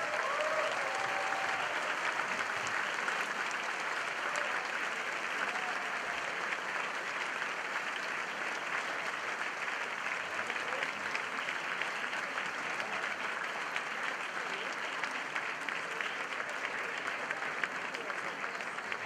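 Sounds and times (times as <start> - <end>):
whoops and cheers: 0.0 - 2.5, 4.2 - 6.3
audience applauding: 0.0 - 19.0.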